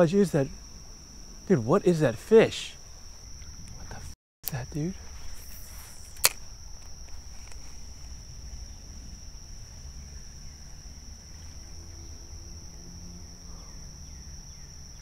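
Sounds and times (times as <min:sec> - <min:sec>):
insects droning: 0:00.0 - 0:15.0
low rumble of moving air: 0:05.0 - 0:15.0.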